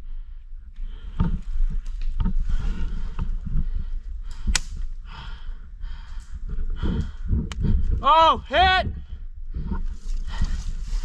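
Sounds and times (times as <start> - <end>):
sharp snap: 4.5 - 4.8
rustling in dry leaves: 10.0 - 11.0.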